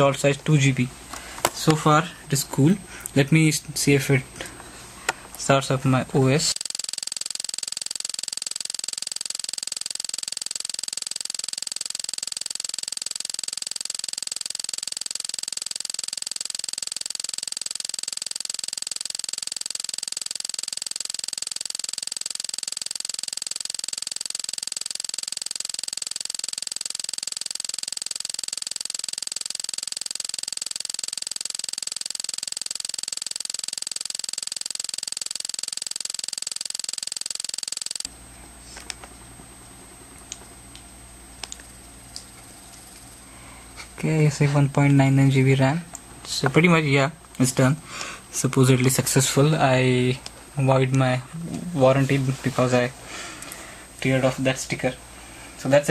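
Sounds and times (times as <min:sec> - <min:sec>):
faint clicks: 0:41.4 - 0:43.1.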